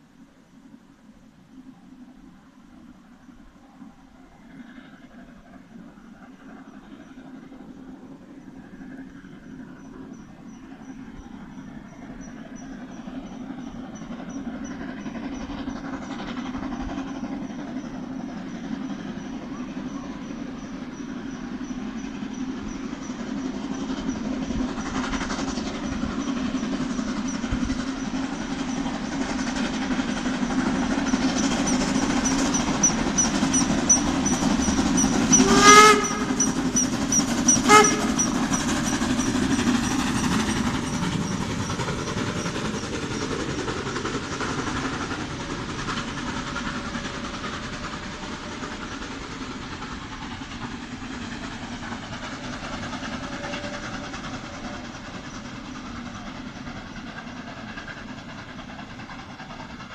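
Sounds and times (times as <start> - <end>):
steam train running: 0.0 - 59.9
steam locomotive whistle: 33.6 - 40.2, 53.0 - 54.8.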